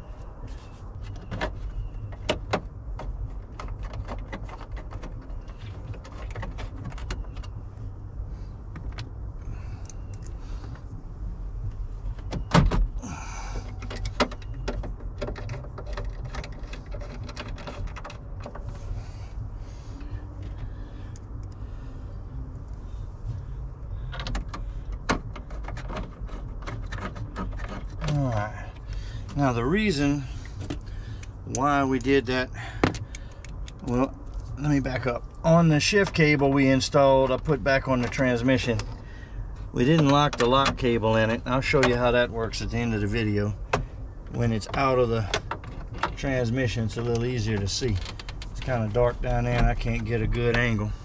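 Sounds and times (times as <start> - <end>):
steady low rumble: 0.0 - 51.0
screws and plastic trim rattling: 24.1 - 28.9, 47.1 - 50.8.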